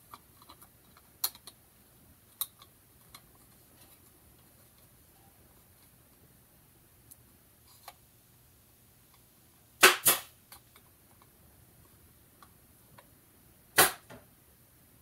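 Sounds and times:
sharp snaps: 9.8 - 10.4, 13.8 - 14.2.

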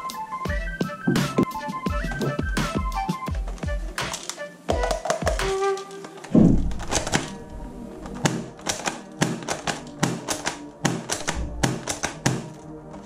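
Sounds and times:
background music: 0.0 - 13.0
plastic toy rifle clicking: 6.1 - 13.0
heavy thump: 6.4 - 6.8.

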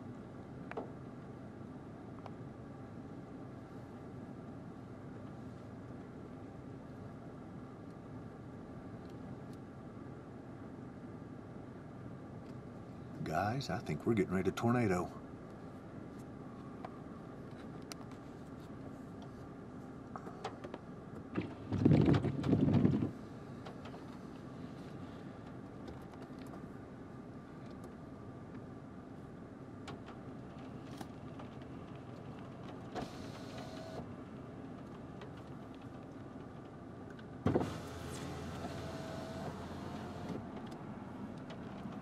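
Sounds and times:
car engine hum: 22.6 - 42.0.

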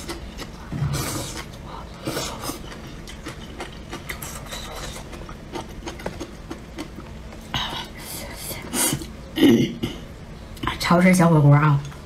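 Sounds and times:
chewing with wet mouth clicks: 2.4 - 7.1.

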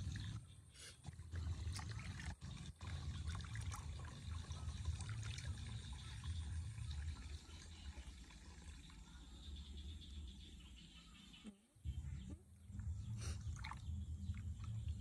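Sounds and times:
water splashing in a plastic basin: 1.1 - 9.0, 13.4 - 15.0.

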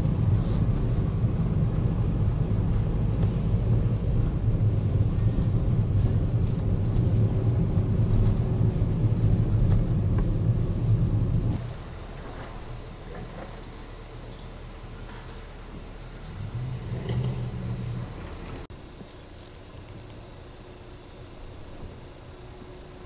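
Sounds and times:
car engine and tyre drone: 0.0 - 23.0.

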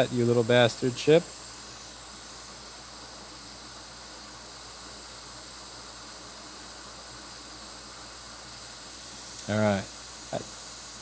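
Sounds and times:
hot air blower hissing: 0.0 - 11.0.

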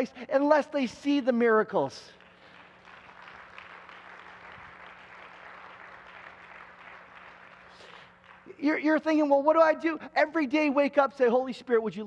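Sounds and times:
low electrical hum: 0.0 - 12.0
people clapping: 2.2 - 8.6.

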